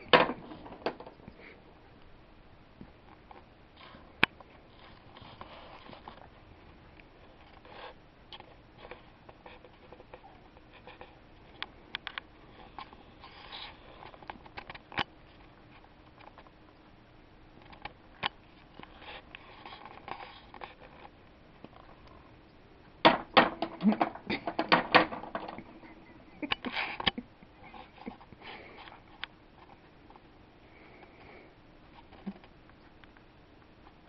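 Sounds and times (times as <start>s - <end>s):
pool balls clicking and knocking: 0.0s - 1.4s, 23.0s - 27.2s
soft scratching and rustling: 2.9s - 16.9s, 17.6s - 22.4s, 27.6s - 34.0s.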